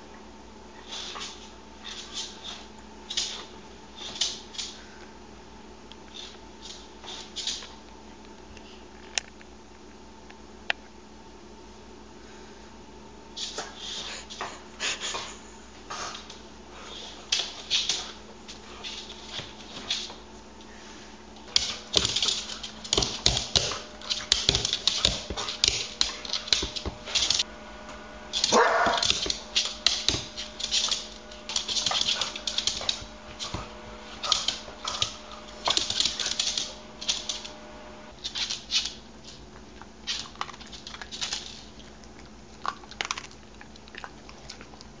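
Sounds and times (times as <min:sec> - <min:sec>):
dog chewing: 0:39.5 - 0:45.0.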